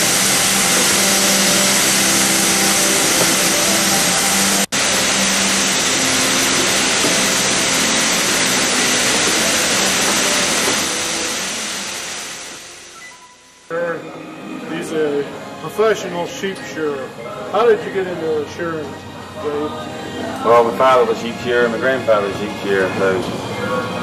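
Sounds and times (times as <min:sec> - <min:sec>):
shearing machine whirring: 0:00.0 - 0:13.0.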